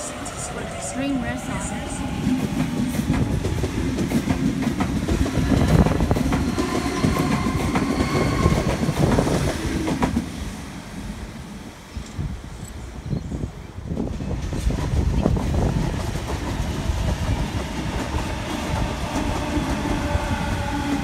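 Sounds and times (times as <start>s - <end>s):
faint train whine: 0.0s - 13.7s
electric train low rumble: 0.0s - 21.0s.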